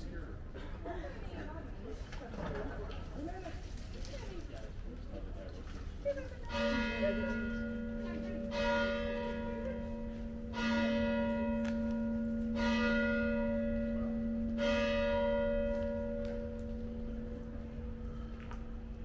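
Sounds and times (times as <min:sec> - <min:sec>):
church bell ringing: 0:06.4 - 0:18.9.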